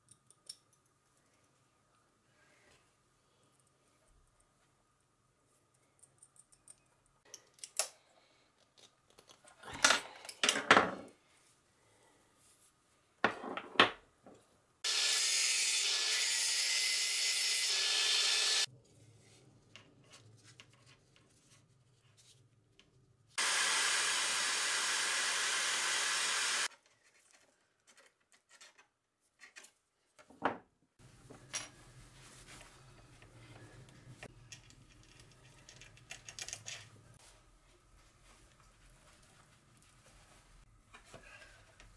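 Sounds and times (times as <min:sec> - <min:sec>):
heat gun blowing: 0:14.8 - 0:18.7, 0:23.4 - 0:26.7
wires clicking and rustling: 0:34.1 - 0:37.2.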